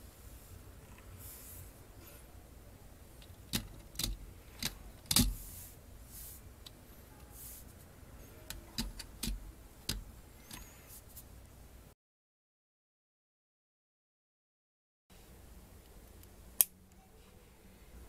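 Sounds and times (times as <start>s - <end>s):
plastic toy clicks and knocks: 3.2s - 5.4s, 8.5s - 10.6s.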